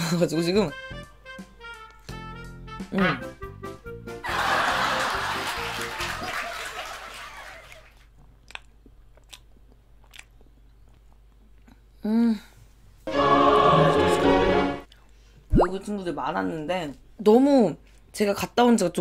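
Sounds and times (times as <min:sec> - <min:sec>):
person chewing: 0:08.2 - 0:11.9
person humming: 0:12.0 - 0:12.5.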